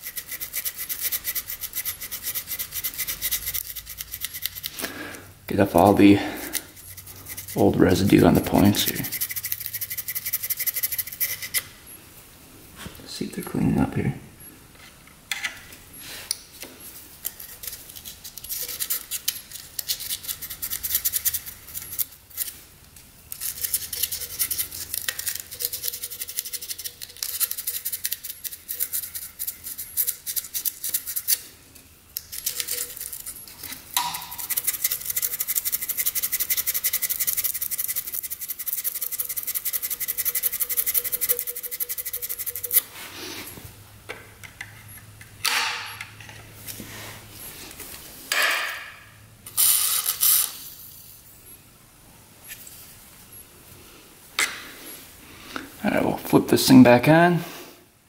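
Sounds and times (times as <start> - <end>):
sandpaper rasping on metal: 0.0 - 4.7, 6.5 - 11.6, 23.4 - 31.4, 34.3 - 42.8.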